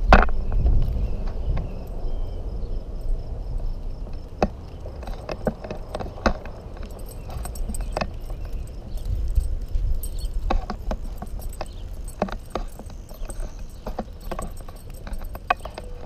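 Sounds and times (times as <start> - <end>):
bicycle tyres rumbling: 0.0 - 16.0
bicycle clicks and rattles: 4.0 - 16.0.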